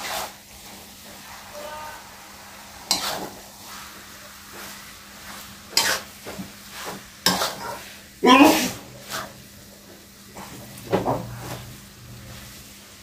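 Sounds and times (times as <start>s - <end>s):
spatula scraping metal wok: 0.0s - 9.5s
food sizzling in a wok: 0.0s - 13.0s.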